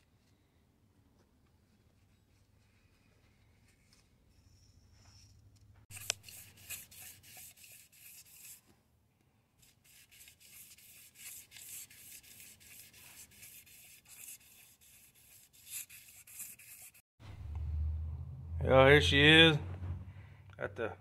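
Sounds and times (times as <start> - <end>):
abrasive strip rasping on metal: 5.9 - 8.7, 9.6 - 17.0.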